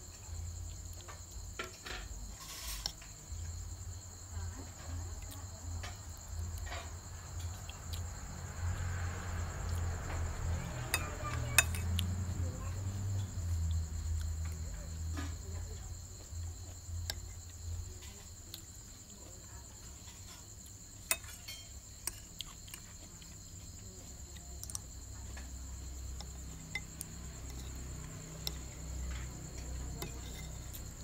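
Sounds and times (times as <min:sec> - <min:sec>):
night insects chirring: 0:00.0 - 0:31.0
spoon clinking on ceramic: 0:10.9 - 0:11.8, 0:30.0 - 0:30.8.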